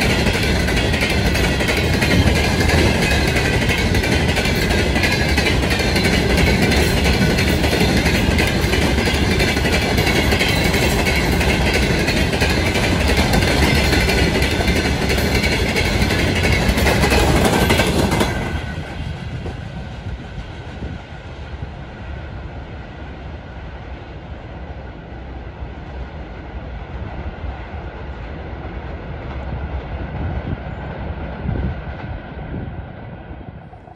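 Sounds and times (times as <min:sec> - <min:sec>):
freight train wheels clattering: 0:00.0 - 0:20.9.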